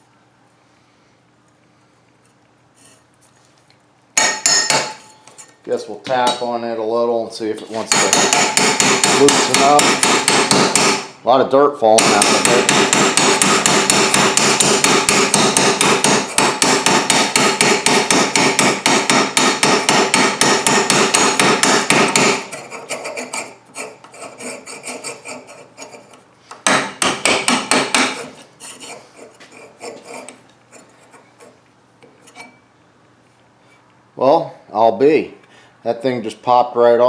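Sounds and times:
hammer tapping on metal: 0:04.2 - 0:05.2, 0:07.9 - 0:11.0, 0:12.0 - 0:22.4, 0:26.6 - 0:28.2.

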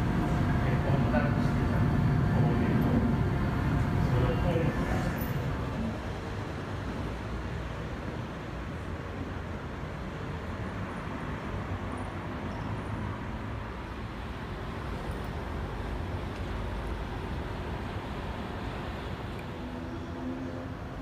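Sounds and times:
distant road traffic rumble: 0:00.0 - 0:21.0.

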